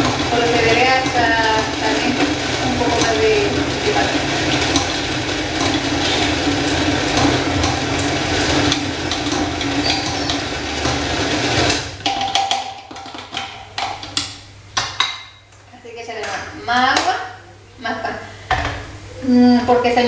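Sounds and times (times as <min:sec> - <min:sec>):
blender running: 0:00.0 - 0:13.4.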